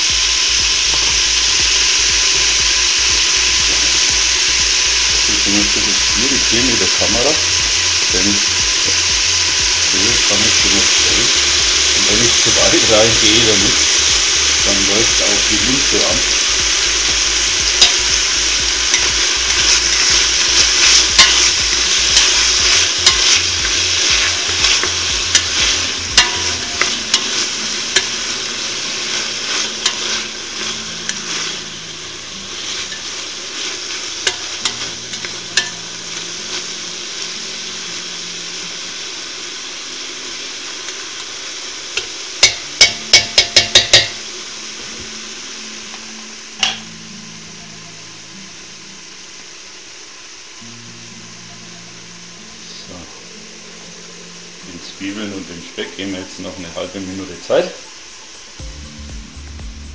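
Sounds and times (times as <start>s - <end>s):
bacon and onions sizzling: 0.0s - 59.9s.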